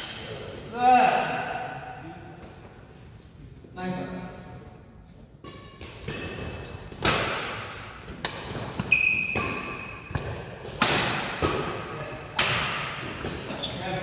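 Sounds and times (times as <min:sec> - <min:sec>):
rackets striking shuttlecock: 0:05.4 - 0:13.5
shoe squeak: 0:06.3 - 0:07.1, 0:08.8 - 0:10.1.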